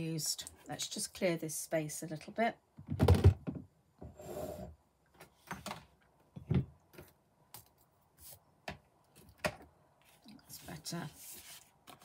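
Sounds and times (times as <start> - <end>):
paper rustling: 10.0 - 12.0.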